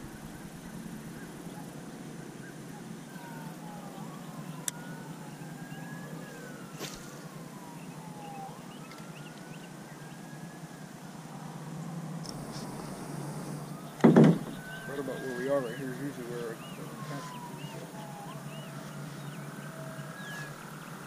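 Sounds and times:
distant sirens wailing: 0:00.0 - 0:21.0
tyres bursting with sharp pops: 0:12.2 - 0:14.7.

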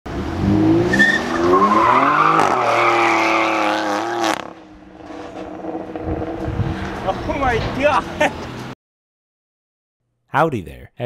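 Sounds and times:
car engine revving: 0:00.1 - 0:08.7.

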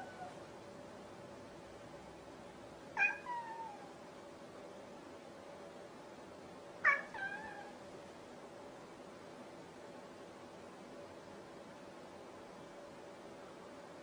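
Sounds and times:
cat meowing: 0:00.0 - 0:00.4, 0:03.0 - 0:04.0, 0:06.8 - 0:07.8.

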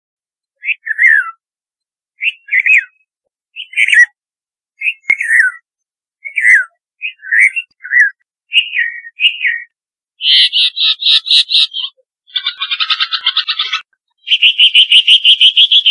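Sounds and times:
bird calling: 0:00.6 - 0:01.4, 0:04.8 - 0:15.9.

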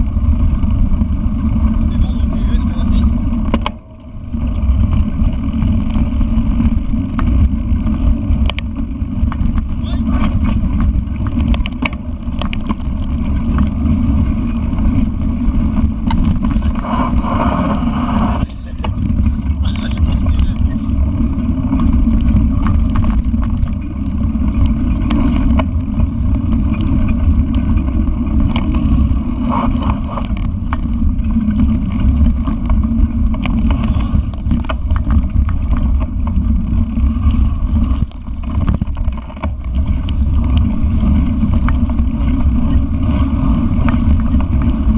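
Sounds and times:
bike rolling over dirt trail: 0:00.0 - 0:44.9
wind on microphone: 0:00.0 - 0:44.9.

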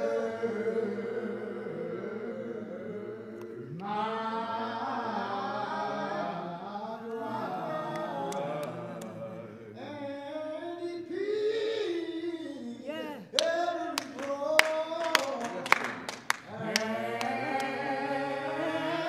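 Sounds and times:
voices singing unaccompanied: 0:00.0 - 0:19.0
hand claps: 0:07.9 - 0:09.2, 0:13.3 - 0:17.8.

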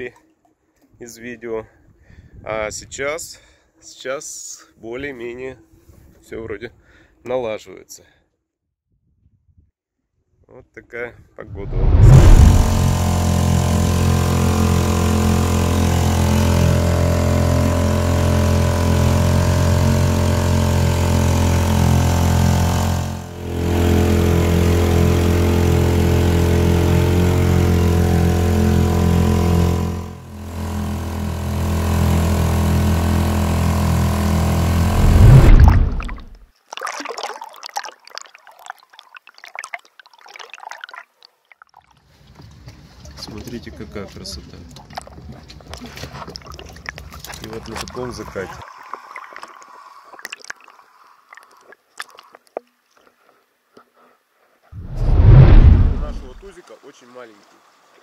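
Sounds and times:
outboard motor running: 0:12.4 - 0:36.0, 0:43.2 - 0:48.7
underwater crackling: 0:36.0 - 0:41.9, 0:44.8 - 0:52.6.

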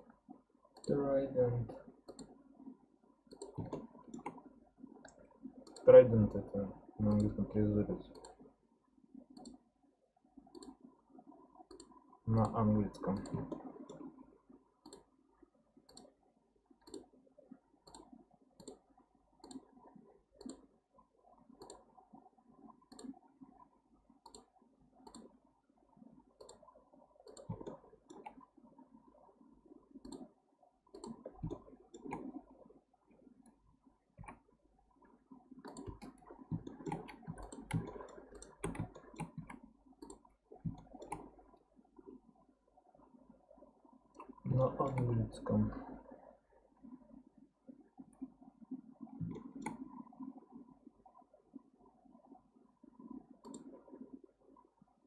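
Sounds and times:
faint background noise: 0:00.0 - 0:55.0
computer mouse clicking: 0:00.7 - 0:01.0, 0:02.0 - 0:02.4, 0:03.3 - 0:07.4, 0:08.1 - 0:08.4, 0:09.3 - 0:09.6, 0:10.5 - 0:10.9, 0:11.6 - 0:14.1, 0:14.8 - 0:15.1, 0:15.8 - 0:16.2, 0:16.8 - 0:17.1, 0:17.8 - 0:18.8, 0:19.4 - 0:20.7, 0:21.6 - 0:22.0, 0:22.9 - 0:23.2, 0:24.2 - 0:25.4, 0:26.4 - 0:28.4, 0:30.0 - 0:30.3, 0:30.9 - 0:32.4, 0:34.2 - 0:34.4, 0:35.6 - 0:41.4, 0:44.2 - 0:45.2, 0:49.0 - 0:50.0, 0:53.4 - 0:53.9.

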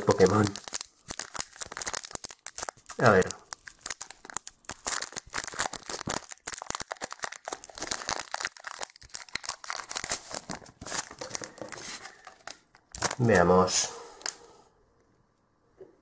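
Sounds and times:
foil wrapper crinkling and tearing: 0:00.0 - 0:13.5.

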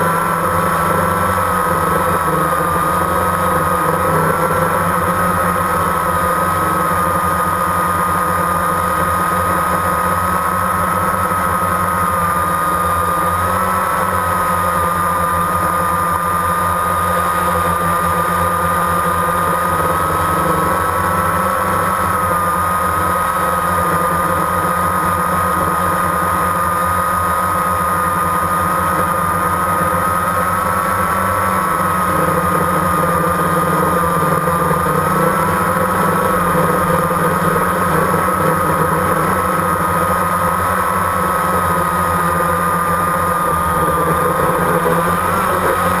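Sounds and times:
drone propellers whining: 0:00.0 - 0:46.0.

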